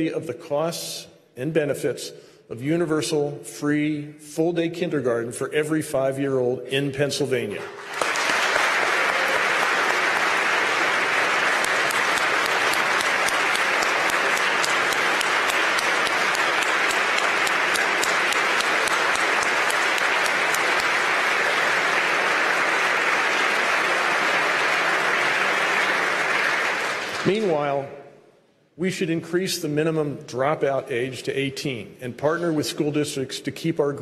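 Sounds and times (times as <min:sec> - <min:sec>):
audience applause: 0:07.6 - 0:27.8
single sharp claps: 0:11.0 - 0:21.7.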